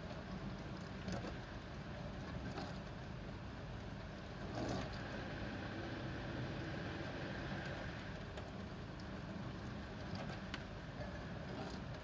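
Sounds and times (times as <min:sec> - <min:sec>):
dishwasher pump hum: 0:00.0 - 0:12.0
water swishes: 0:00.0 - 0:12.0
water spraying in dishwasher: 0:04.4 - 0:08.2.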